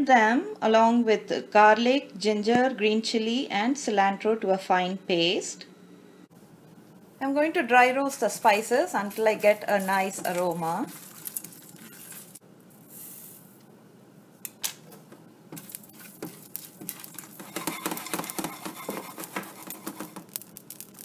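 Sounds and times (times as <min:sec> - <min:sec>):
spices rattling in a pan: 0:08.1 - 0:13.4, 0:15.6 - 0:21.0
spatula scraping a pan: 0:08.3 - 0:12.4, 0:15.6 - 0:20.4.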